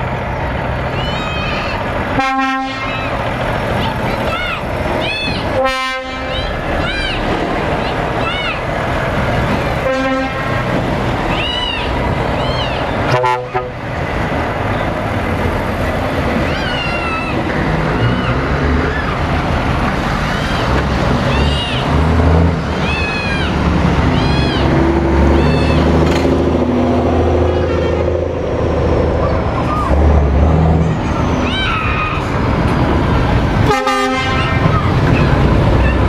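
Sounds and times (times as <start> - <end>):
truck diesel engines rumbling: 0.0 - 36.0
truck horn blasts: 2.2 - 2.9, 5.6 - 6.4, 9.8 - 10.6, 13.1 - 13.8, 27.4 - 28.3, 33.6 - 34.7.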